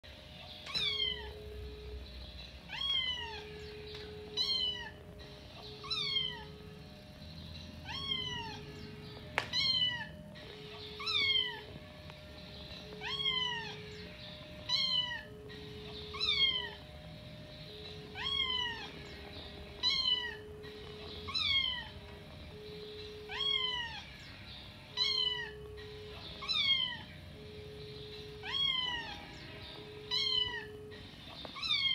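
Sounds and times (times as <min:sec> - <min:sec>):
kitten meowing: 0:00.7 - 0:01.4, 0:02.7 - 0:03.7, 0:04.3 - 0:05.0, 0:05.6 - 0:06.5, 0:07.8 - 0:08.6, 0:09.4 - 0:10.2, 0:10.9 - 0:11.7, 0:12.9 - 0:13.8, 0:14.7 - 0:15.4, 0:16.1 - 0:16.8, 0:18.2 - 0:19.0, 0:19.8 - 0:20.6, 0:21.3 - 0:21.9, 0:23.2 - 0:24.2, 0:25.0 - 0:25.7, 0:26.4 - 0:27.0, 0:28.4 - 0:29.4, 0:30.1 - 0:30.8, 0:31.5 - 0:31.9.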